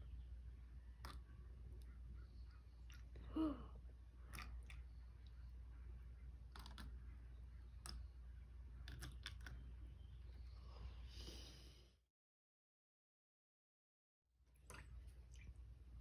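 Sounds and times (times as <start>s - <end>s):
plastic cups clicking and tapping: 6.5s - 7.0s, 8.8s - 9.6s.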